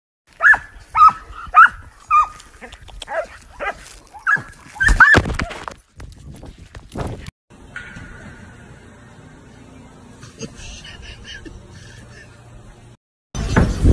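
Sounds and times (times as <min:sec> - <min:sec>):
dog barking: 0:00.4 - 0:02.3, 0:03.1 - 0:05.2.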